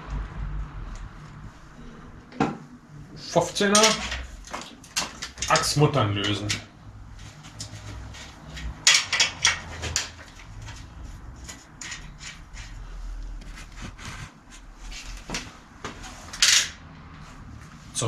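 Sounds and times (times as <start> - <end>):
wrench clicking and clanking: 8.5 - 10.7, 11.4 - 12.8.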